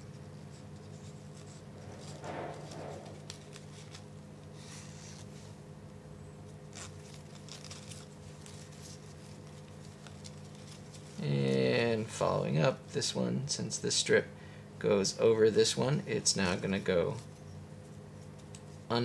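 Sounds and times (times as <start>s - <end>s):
paper strips rustling: 0.0s - 5.5s, 6.6s - 12.1s.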